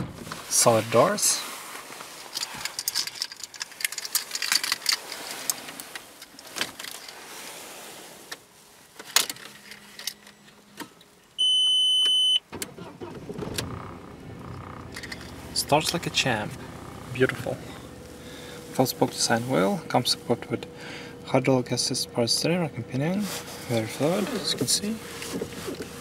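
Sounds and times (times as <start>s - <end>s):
car engine starting and idling: 9.3s - 26.0s
electronic beep: 11.4s - 12.4s.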